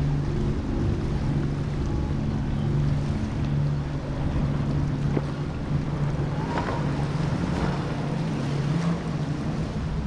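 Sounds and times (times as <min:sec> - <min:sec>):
powerboat engines running: 0:00.0 - 0:10.0
water rushing: 0:00.0 - 0:10.0
wind buffeting microphone: 0:00.0 - 0:10.0.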